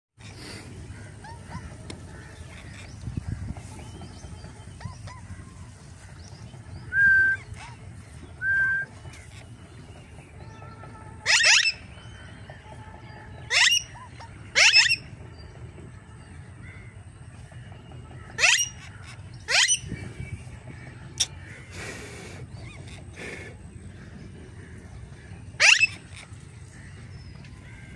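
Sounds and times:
parakeet harsh screeches: 0:14.6 - 0:15.0, 0:18.4 - 0:19.8, 0:25.6 - 0:26.3
parakeet whistles: 0:25.6 - 0:26.0.

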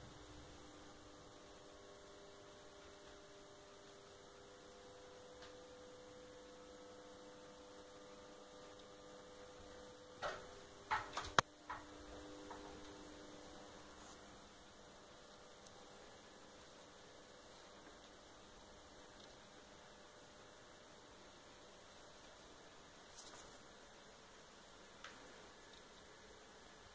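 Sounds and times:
faint electrical hum: 0:00.0 - 0:26.9
sharp clicks and knocks: 0:10.2 - 0:12.9.

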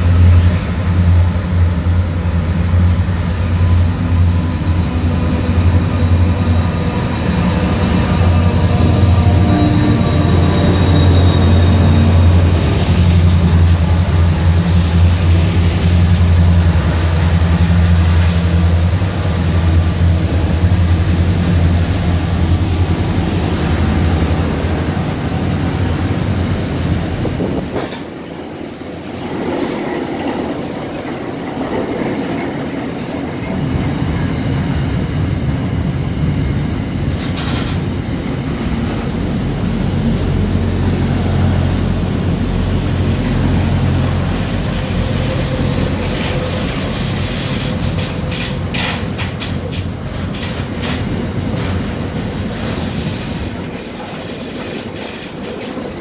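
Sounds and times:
diesel locomotive rumble: 0:00.0 - 0:29.4, 0:30.2 - 0:56.0
faint high wheel squeal: 0:09.1 - 0:12.2
wheels clattering on rails: 0:27.4 - 0:28.3, 0:36.9 - 0:39.2, 0:43.6 - 0:56.0.

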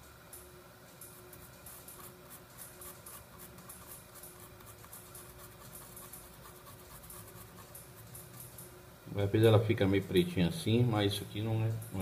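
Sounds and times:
brush bristles scratching: 0:01.2 - 0:08.5.

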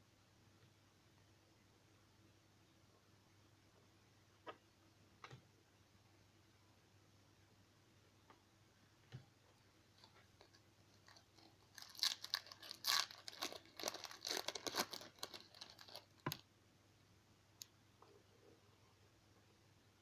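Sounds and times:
wrapper tearing and crinkling: 0:10.4 - 0:16.3.

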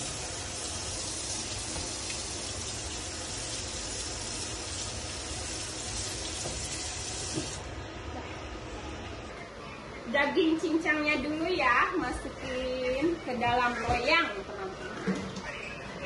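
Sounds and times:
faucet water running: 0:00.0 - 0:07.6.

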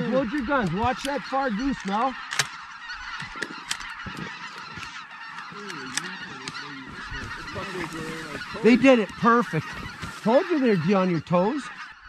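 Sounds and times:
geese honking: 0:00.0 - 0:12.0.

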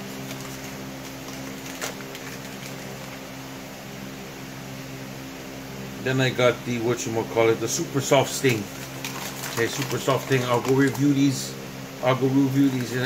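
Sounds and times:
low mechanical hum: 0:00.0 - 0:13.0
packaging click: 0:08.4 - 0:11.2.

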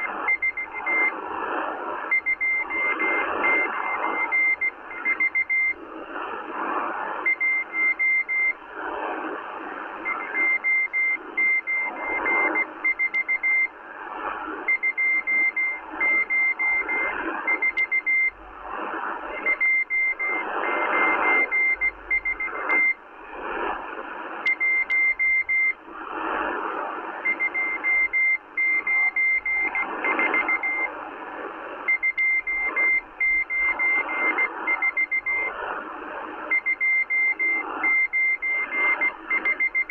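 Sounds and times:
morse code beeps: 0:00.0 - 0:01.2, 0:02.1 - 0:05.8, 0:07.2 - 0:08.6, 0:10.0 - 0:13.7, 0:14.6 - 0:18.4, 0:19.2 - 0:23.0, 0:24.4 - 0:25.8, 0:27.2 - 0:30.9, 0:31.8 - 0:35.7, 0:36.5 - 0:39.9
shortwave static: 0:00.0 - 0:39.9.

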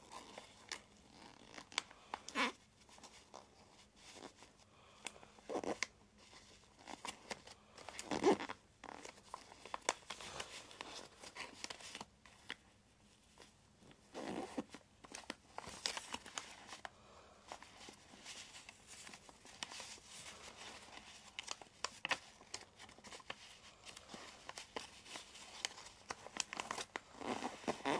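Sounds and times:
paper rustling and crinkling: 0:05.6 - 0:27.9.

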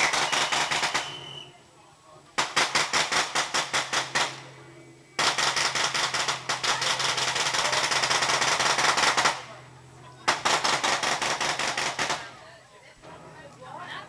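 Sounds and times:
anti-aircraft gun firing bursts: 0:00.0 - 0:01.2, 0:02.4 - 0:04.4, 0:05.2 - 0:09.5, 0:10.3 - 0:12.3.

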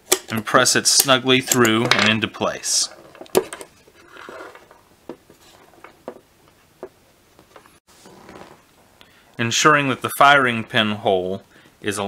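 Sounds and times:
metal parts sliding: 0:02.9 - 0:04.8.

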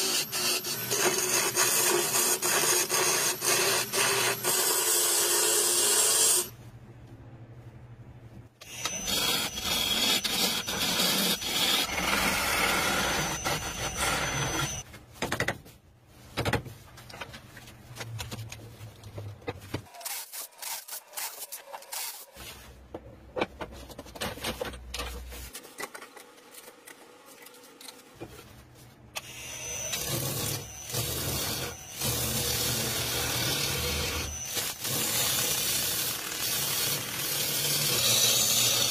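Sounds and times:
lathe tool scraping wood: 0:08.6 - 0:14.8.

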